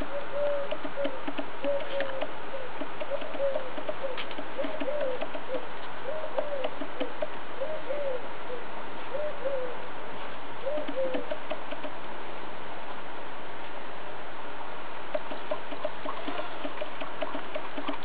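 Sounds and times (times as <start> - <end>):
bird cooing: 0.0 - 10.0, 10.6 - 11.8, 15.2 - 18.0.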